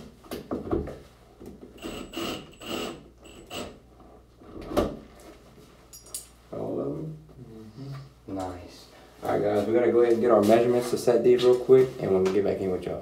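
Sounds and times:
cordless drill whirring: 0:01.8 - 0:03.8.

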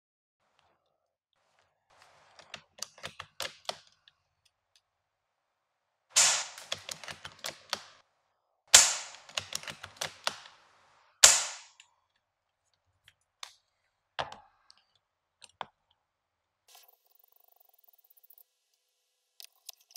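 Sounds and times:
airsoft rifle shots: 0:06.2 - 0:08.0, 0:08.7 - 0:10.6, 0:11.2 - 0:11.8.

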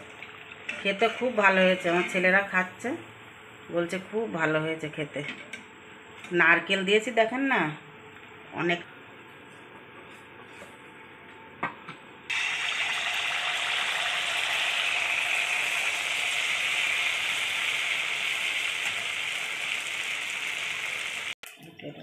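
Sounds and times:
batter sizzling in hot oil: 0:12.3 - 0:21.4.

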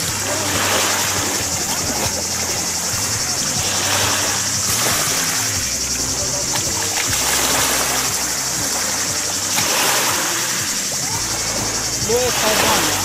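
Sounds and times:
music with held low notes: 0:00.0 - 0:13.0
water splashing as someone wades: 0:00.0 - 0:13.0.

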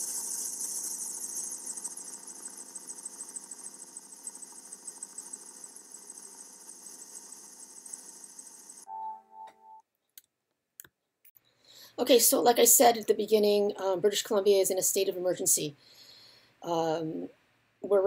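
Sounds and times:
helicopter turbine and rotor: 0:00.0 - 0:08.9.

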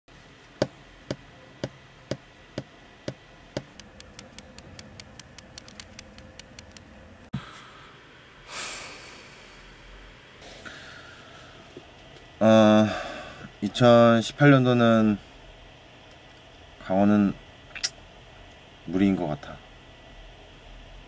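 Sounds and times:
knocking on wooden desk: 0:03.1 - 0:03.8.

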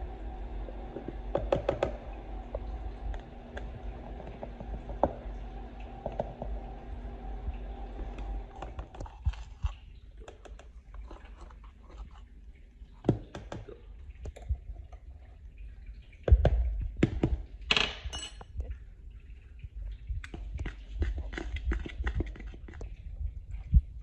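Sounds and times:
steady low hum: 0:00.0 - 0:10.2.

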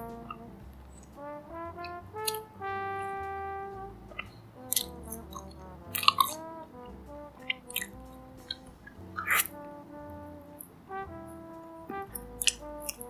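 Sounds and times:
swing music with trombone: 0:00.0 - 0:13.0.

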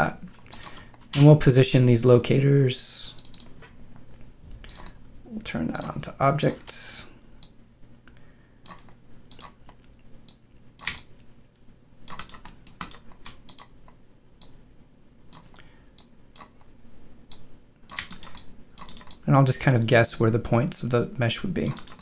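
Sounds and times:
computer mouse clicks: 0:03.1 - 0:03.6, 0:04.5 - 0:05.0, 0:07.4 - 0:11.3, 0:12.1 - 0:14.6, 0:15.3 - 0:16.7, 0:17.3 - 0:19.2.

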